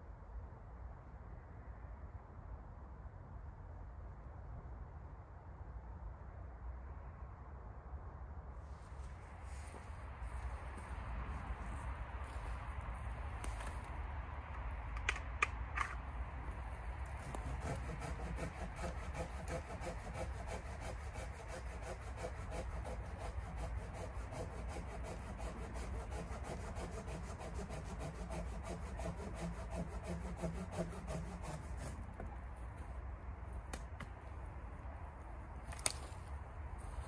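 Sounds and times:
hand saw cutting wood: 0:17.1 - 0:32.3.

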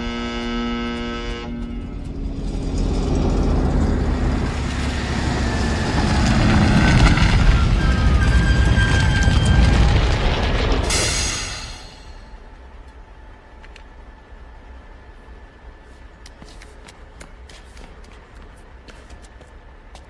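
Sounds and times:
truck engine rumble: 0:00.0 - 0:18.9
high squealing tones: 0:04.4 - 0:10.2.

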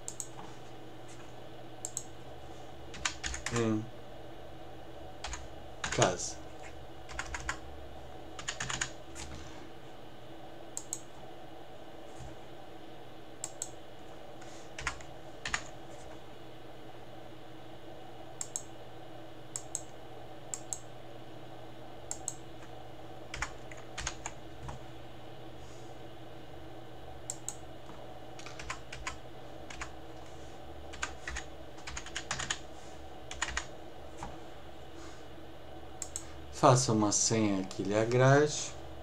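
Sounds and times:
steady background hum: 0:00.0 - 0:39.0
keyboard typing: 0:02.9 - 0:03.7, 0:05.2 - 0:06.1, 0:07.1 - 0:07.6, 0:08.4 - 0:09.3, 0:14.8 - 0:15.7, 0:23.3 - 0:24.8, 0:28.4 - 0:29.9, 0:30.9 - 0:32.6, 0:33.3 - 0:33.7.

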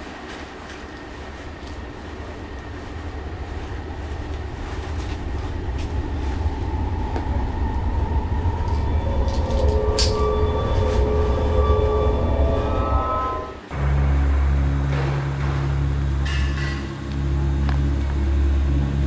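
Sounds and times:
heavy low rumble: 0:00.0 - 0:19.0
sustained high tones: 0:05.5 - 0:16.3.

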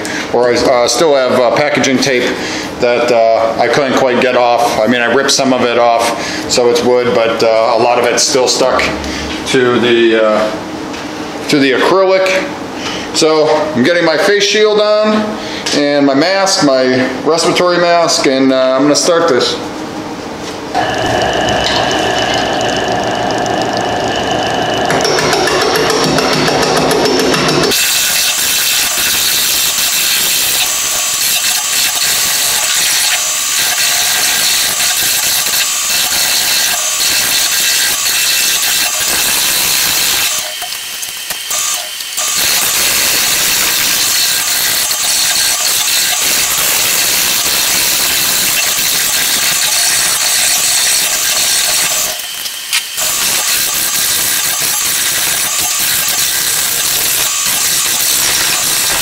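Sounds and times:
lathe gouge scraping hiss: 0:27.6 - 0:59.0.

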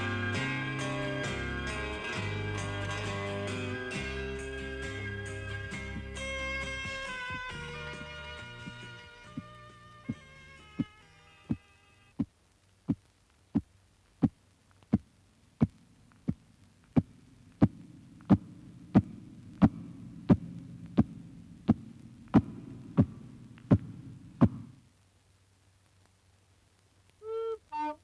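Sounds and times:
low hum: 0:15.0 - 0:25.0
heartbeat-like throbbing pulse: 0:17.0 - 0:24.8.

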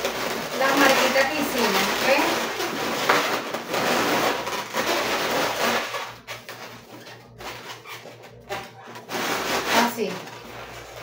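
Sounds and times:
balloons rubbing together: 0:00.0 - 0:11.0.

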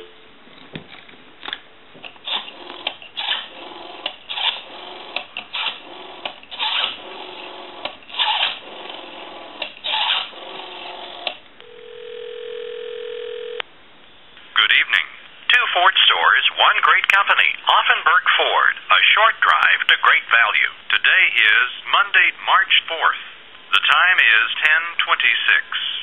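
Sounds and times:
telephone ringback tone: 0:11.6 - 0:13.6.

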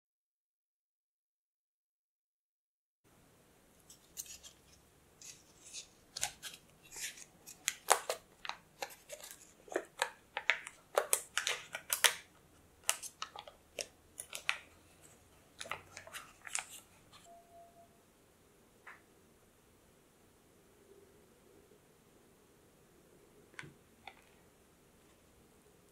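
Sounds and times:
foil paper wrapper crinkling: 0:03.9 - 0:17.3.

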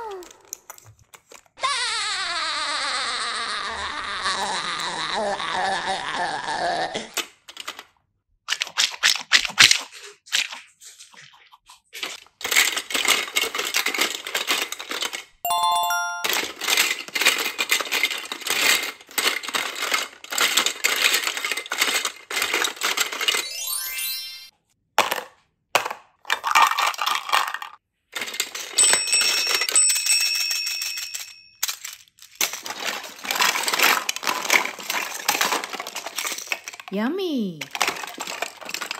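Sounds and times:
plastic toys clattering: 0:00.0 - 0:01.6, 0:07.0 - 0:08.1, 0:11.9 - 0:24.1, 0:25.0 - 0:37.0, 0:37.6 - 0:38.9
short ringing tone: 0:15.5 - 0:16.5.

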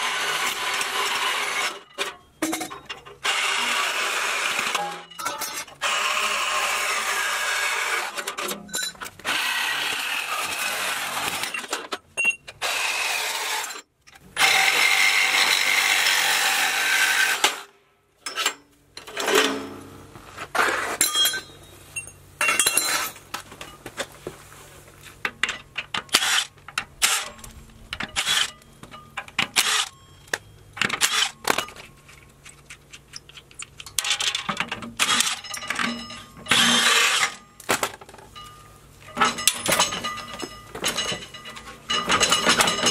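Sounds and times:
metallic knocks and clinks: 0:01.9 - 0:03.1, 0:08.5 - 0:09.1, 0:21.0 - 0:24.0, 0:25.3 - 0:36.6, 0:38.2 - 0:42.9
cordless drill running: 0:09.2 - 0:11.5, 0:36.5 - 0:37.3.

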